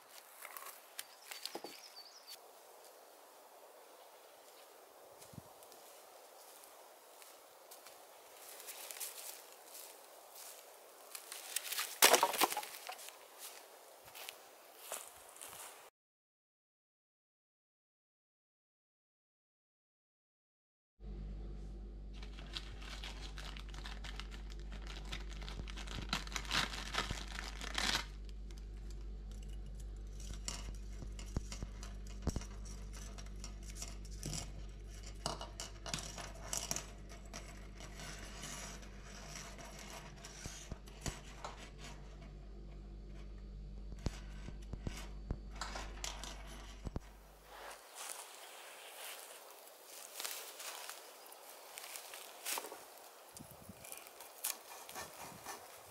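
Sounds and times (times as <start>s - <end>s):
low hum: 21.0s - 55.8s
wire saw clicking and scraping: 27.8s - 42.4s, 43.9s - 47.2s, 52.5s - 55.9s.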